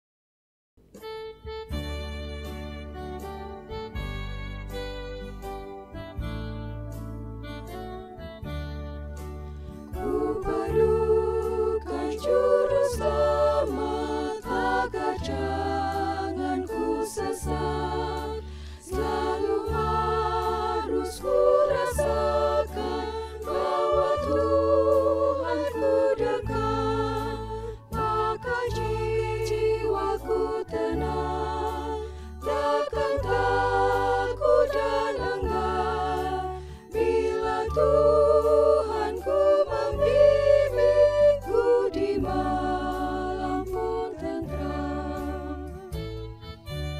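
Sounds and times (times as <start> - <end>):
low bass notes: 1.2 - 46.9
women's choir singing hymn: 10.0 - 46.0.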